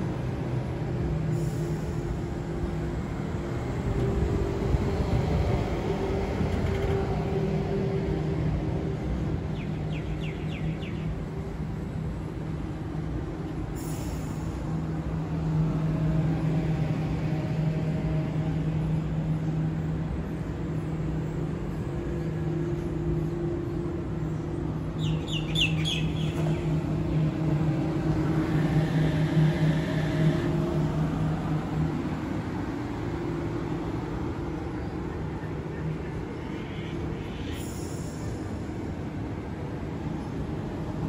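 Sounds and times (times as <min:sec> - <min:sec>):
electric train humming: 0:00.0 - 0:41.0
bird chirping: 0:25.0 - 0:26.7.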